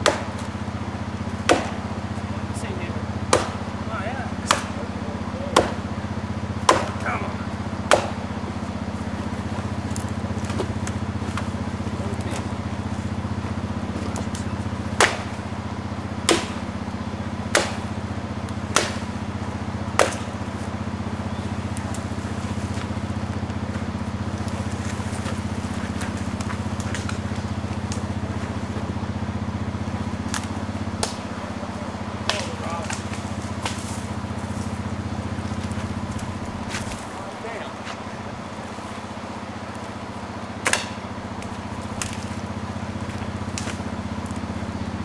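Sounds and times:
axe chopping wood: 0:00.0 - 0:00.5, 0:01.3 - 0:01.9, 0:03.2 - 0:03.8, 0:04.4 - 0:04.8, 0:05.5 - 0:05.9, 0:06.6 - 0:08.3, 0:14.1 - 0:15.5, 0:16.2 - 0:16.8, 0:17.4 - 0:20.5, 0:30.2 - 0:31.4, 0:32.2 - 0:34.1, 0:40.6 - 0:42.4
quad bike engine idling: 0:00.0 - 0:45.0.

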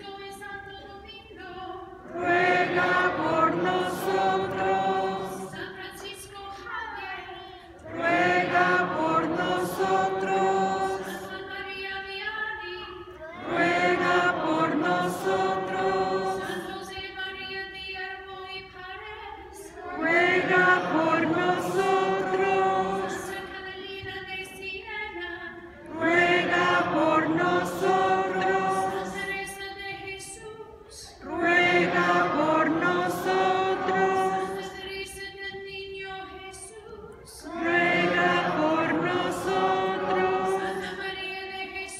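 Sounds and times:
choir singing a chant: 0:02.0 - 0:06.2, 0:07.8 - 0:12.1, 0:13.2 - 0:18.4, 0:19.3 - 0:24.6, 0:25.5 - 0:35.6, 0:37.3 - 0:41.9.

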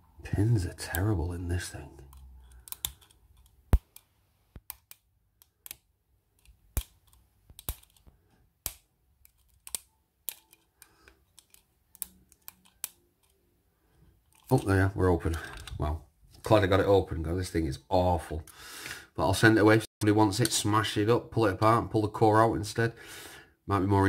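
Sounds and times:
lock pick clicking in padlock: 0:02.1 - 0:08.0, 0:08.6 - 0:13.4.

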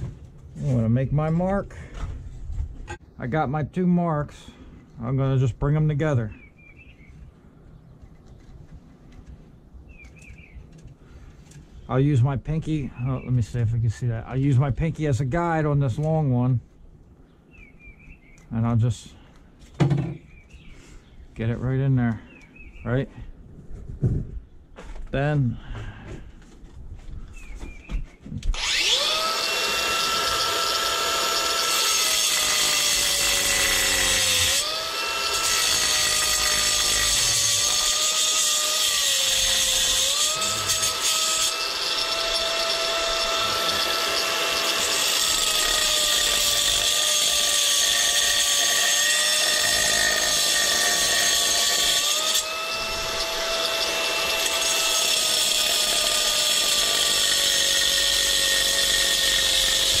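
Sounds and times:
angle grinder cutting stone: 0:28.5 - 1:00.0.

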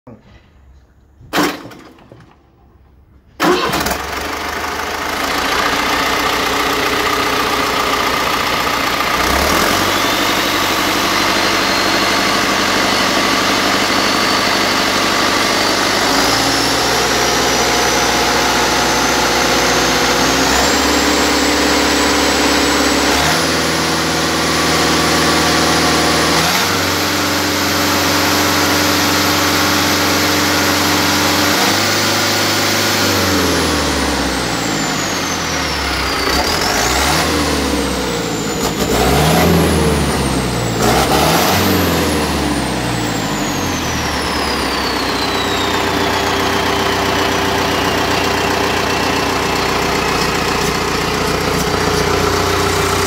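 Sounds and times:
diesel engine starting and running: 0:00.1 - 0:53.0
high turbo whistle: 0:43.0 - 0:53.0.

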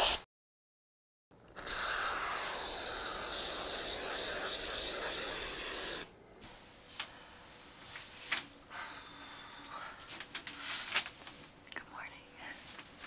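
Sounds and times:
spray foam can hissing: 0:00.0 - 0:00.2, 0:01.6 - 0:06.1
faint steady hum: 0:01.3 - 0:13.0.

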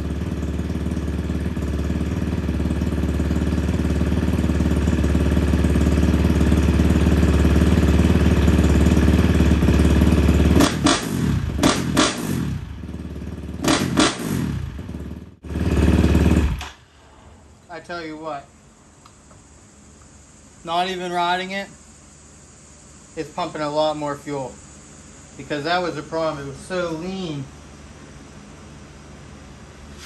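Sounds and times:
dirt bike engine idling and revving: 0:00.0 - 0:16.8
man talking: 0:17.7 - 0:18.5, 0:20.6 - 0:21.8, 0:23.2 - 0:24.6, 0:25.4 - 0:27.5.

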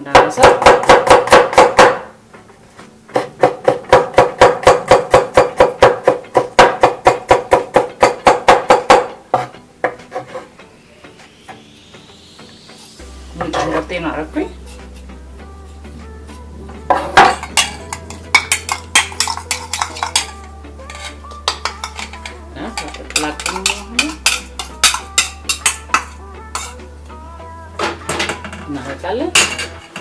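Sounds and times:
knife chopping on wooden board: 0:00.1 - 0:02.1, 0:03.2 - 0:10.4.

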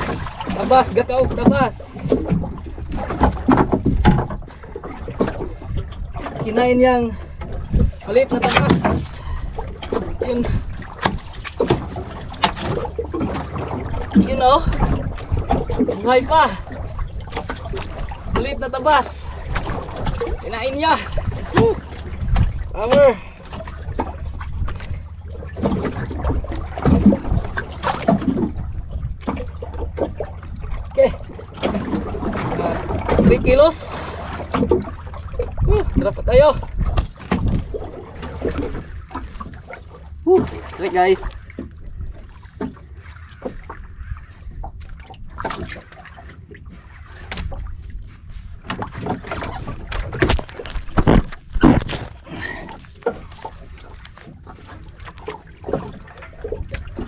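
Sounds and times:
wind buffeting microphone: 0:00.0 - 0:43.0
low steady rumble: 0:00.0 - 0:57.0
splashes and knocks: 0:00.0 - 0:57.0
water sloshing against boat hull: 0:00.0 - 0:57.0.

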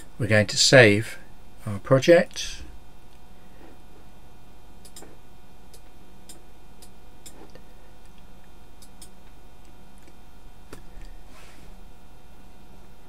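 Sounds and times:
steady background hum: 0:00.0 - 0:13.0
computer mouse clicking: 0:04.8 - 0:05.1, 0:08.8 - 0:09.2.

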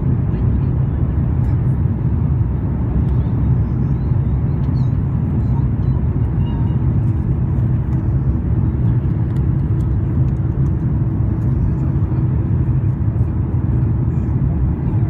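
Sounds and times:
aircraft cabin rumble: 0:00.0 - 0:15.0.

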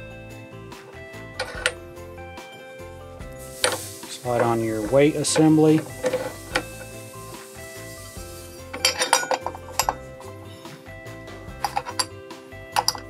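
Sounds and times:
background music: 0:00.0 - 0:13.0
metal parts clinking: 0:01.4 - 0:01.8, 0:03.5 - 0:07.0, 0:08.0 - 0:10.4, 0:11.6 - 0:12.2, 0:12.8 - 0:13.0.

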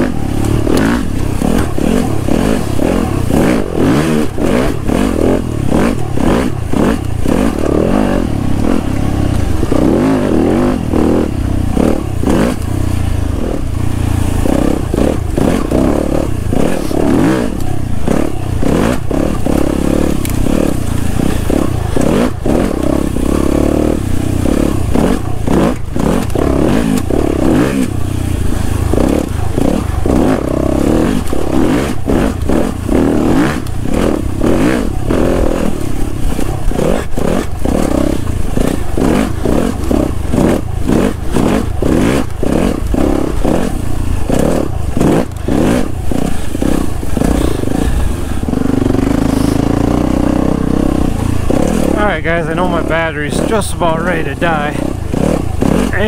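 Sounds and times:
bike knocks and rattles: 0:00.0 - 0:53.4
dirt bike engine revving: 0:00.0 - 0:56.0.

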